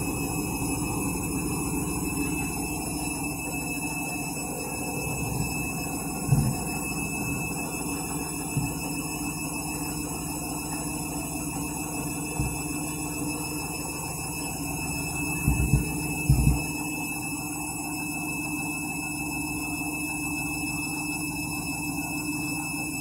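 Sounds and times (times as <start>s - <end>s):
washing machine motor hum: 0.0s - 23.0s
drum thudding: 6.3s - 6.7s, 15.4s - 16.6s.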